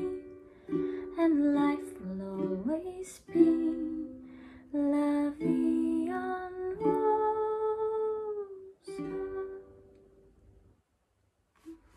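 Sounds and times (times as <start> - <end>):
ukulele strumming: 0.0 - 10.2
woman singing long notes: 1.1 - 9.9.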